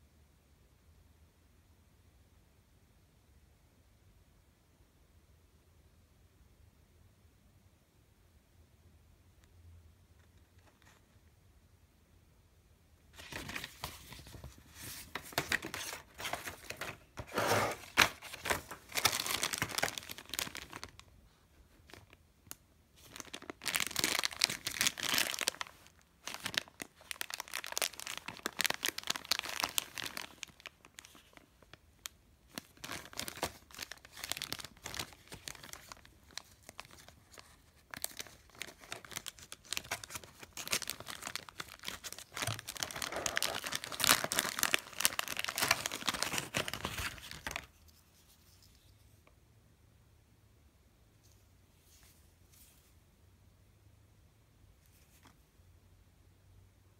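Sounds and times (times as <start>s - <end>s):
plastic bag and paper crinkling: 13.1s - 22.2s, 23.0s - 49.1s.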